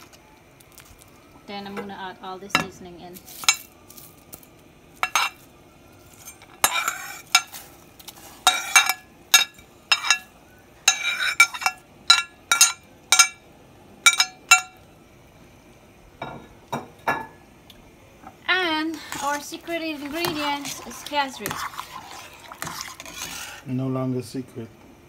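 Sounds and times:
spoon scraping cooking pot: 6.2 - 10.3, 10.9 - 12.8, 18.9 - 23.7
metal spoon clinking on plate: 8.5 - 10.3.

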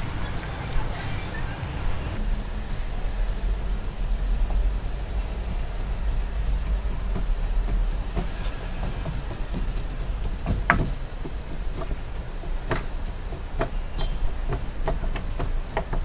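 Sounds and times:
low rumble: 0.0 - 15.8
clicks and knocks on metal: 6.4 - 16.0.

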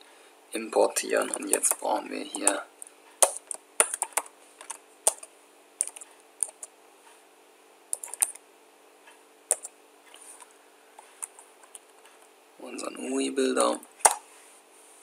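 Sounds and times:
keyboard typing: 1.2 - 2.6, 3.2 - 6.7, 7.9 - 8.4, 9.5 - 9.7, 11.0 - 12.3.

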